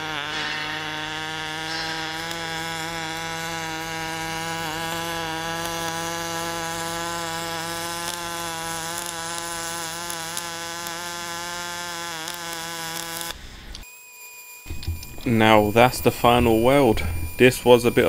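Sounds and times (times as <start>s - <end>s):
welding arc buzzing: 0.0s - 18.0s.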